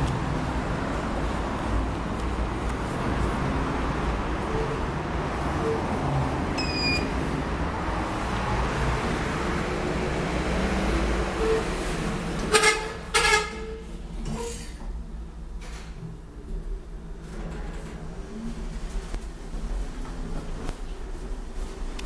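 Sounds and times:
traffic-like background noise: 0.0 - 22.0
elevator doors closing: 2.0 - 16.4
loud elevator beeps: 6.6 - 7.1
short high beep: 6.6 - 7.1.

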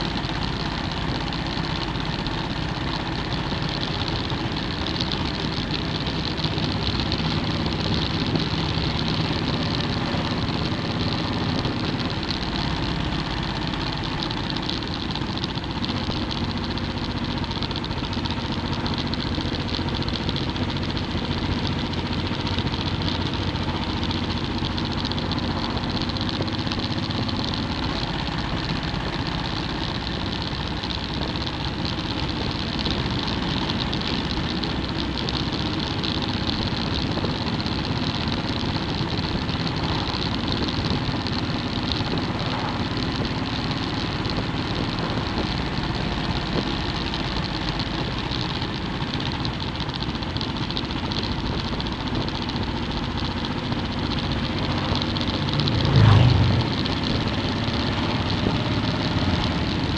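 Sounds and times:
motorcycle engine cruising: 0.0 - 59.9
road noise: 0.0 - 59.9.

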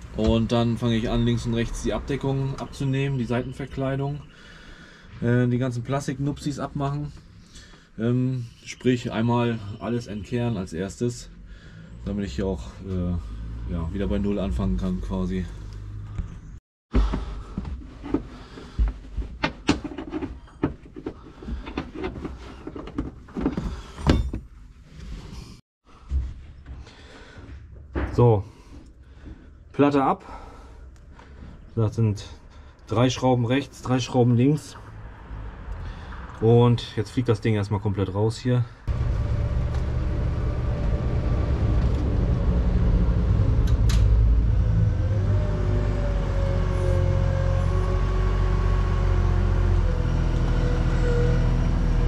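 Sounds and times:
diesel engine running: 38.9 - 52.0.

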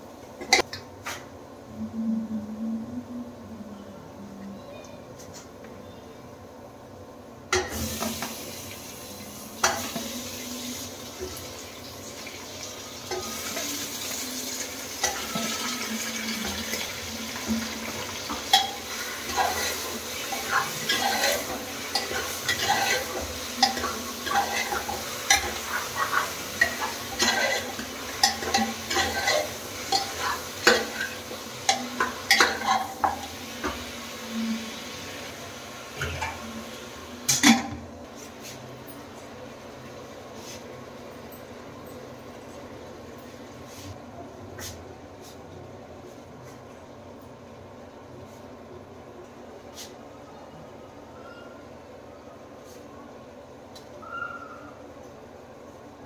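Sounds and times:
steady sizzle: 7.4 - 38.4
metal spatula scraping a pot: 18.4 - 33.2.

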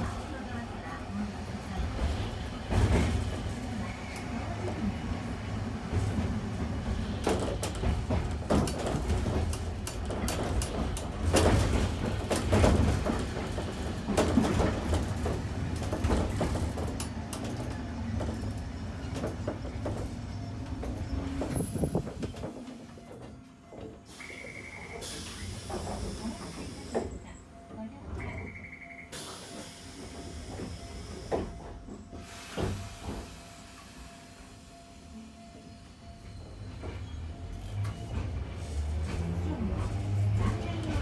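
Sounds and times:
tram running noise: 0.0 - 41.0
wheels clacking over rail joints: 5.8 - 28.5.

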